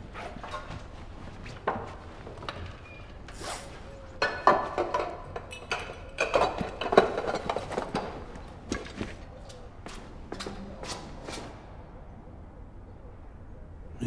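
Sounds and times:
clothing rustle: 0.0 - 4.2.

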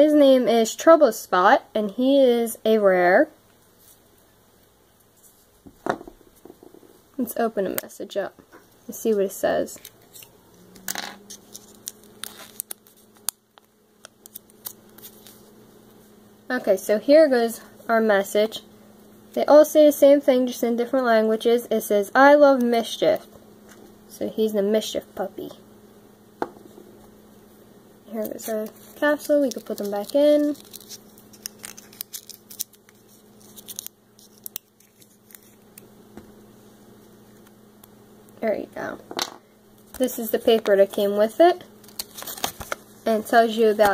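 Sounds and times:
paper rustling: 11.3 - 13.2, 28.4 - 35.6, 41.8 - 42.8.

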